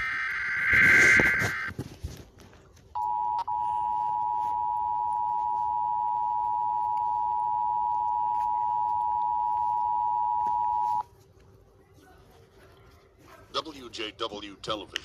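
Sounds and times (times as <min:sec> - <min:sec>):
loud two-tone alert signal: 0:00.0 - 0:01.7.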